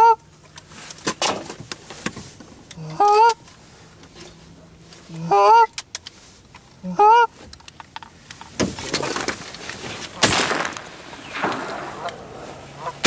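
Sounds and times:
shotgun shots with echo: 0:10.2 - 0:12.7.

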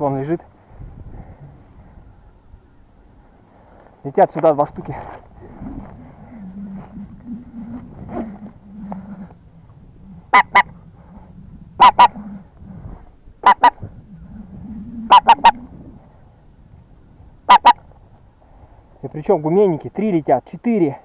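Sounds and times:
geese honking: 0:05.4 - 0:12.8, 0:13.4 - 0:16.0, 0:17.5 - 0:17.8.

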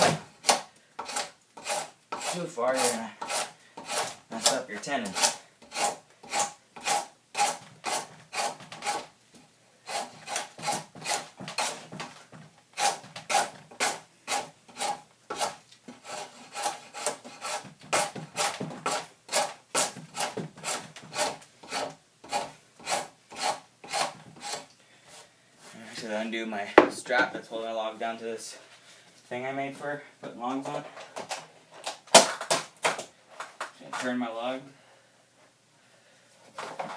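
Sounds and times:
draw knife scraping wood: 0:00.0 - 0:09.1, 0:09.9 - 0:12.1, 0:12.8 - 0:24.7.

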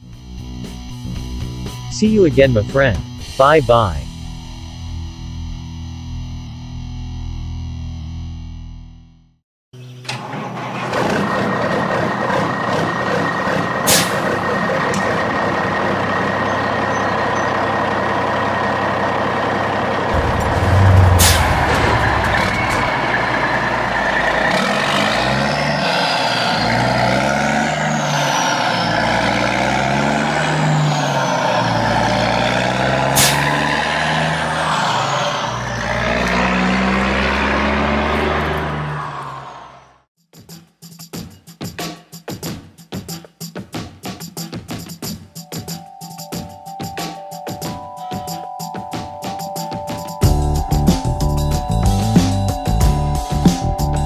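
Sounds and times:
diesel truck engine running: 0:10.1 - 0:40.0.

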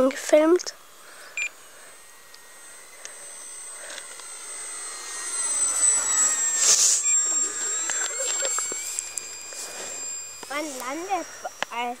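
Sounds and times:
model plane motor whining: 0:00.0 - 0:12.0.

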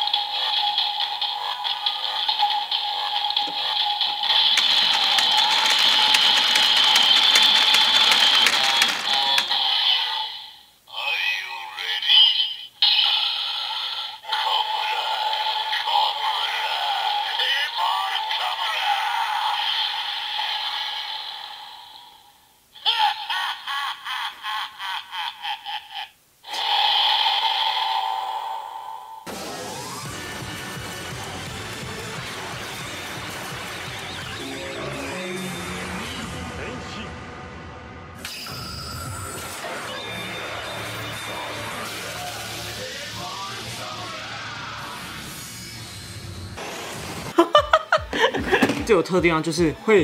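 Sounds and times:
toy electronic standby sound: 0:04.4 - 0:09.9
rapid ratcheting clicks: 0:04.5 - 0:09.7.

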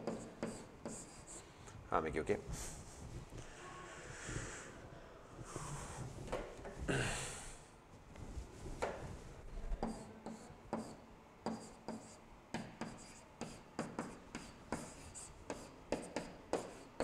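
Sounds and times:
stylus tapping and scratching on board: 0:00.0 - 0:01.3, 0:09.8 - 0:17.0.

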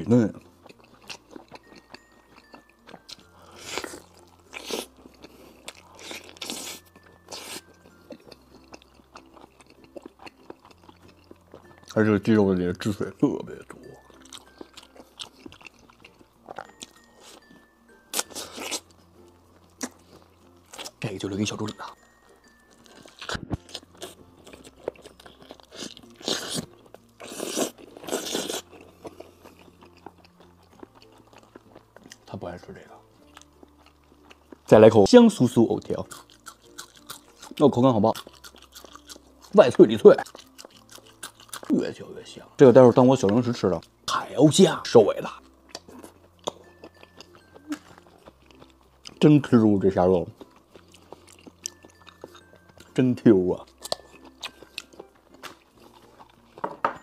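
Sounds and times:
quiet chewing: 0:00.4 - 0:12.0, 0:13.9 - 0:21.0, 0:22.7 - 0:32.3, 0:33.0 - 0:34.7, 0:35.8 - 0:41.9, 0:45.3 - 0:49.3, 0:50.3 - 0:53.0, 0:53.6 - 0:56.7
crunching bites of fried chicken: 0:23.0 - 0:28.8, 0:36.0 - 0:41.7.

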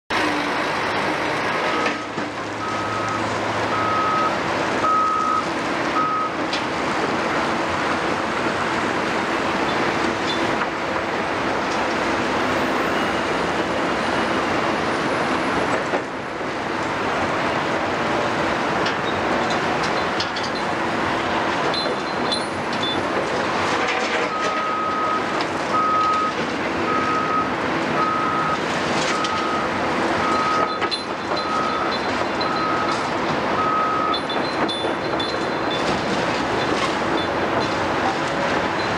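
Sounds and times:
heavy diesel machinery din: 0:00.1 - 0:38.9
reversing alarm beeping: 0:02.6 - 0:06.4, 0:21.7 - 0:23.1, 0:24.3 - 0:36.2.

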